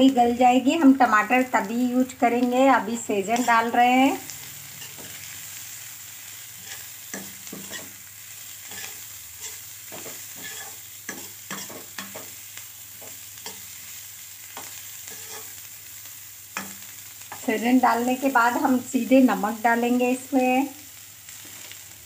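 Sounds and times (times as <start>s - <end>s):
food sizzling in oil: 0.0s - 22.0s
metal spatula scraping pan: 4.7s - 5.4s, 6.6s - 8.0s, 8.6s - 12.4s, 14.6s - 15.6s.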